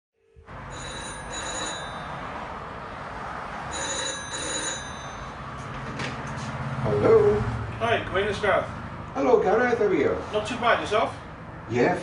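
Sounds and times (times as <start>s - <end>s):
telephone bell ringing: 0.2s - 2.5s, 3.7s - 5.6s.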